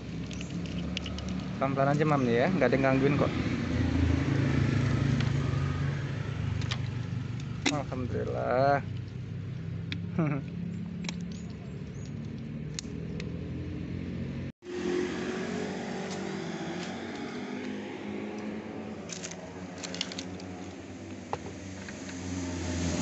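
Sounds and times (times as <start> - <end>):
vehicle engine running: 0.0 - 23.0.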